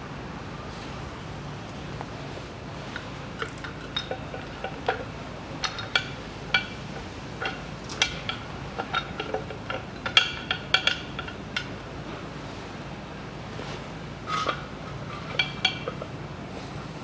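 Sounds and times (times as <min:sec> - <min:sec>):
metallic clinks and taps: 0:03.0 - 0:11.8, 0:14.4 - 0:16.1.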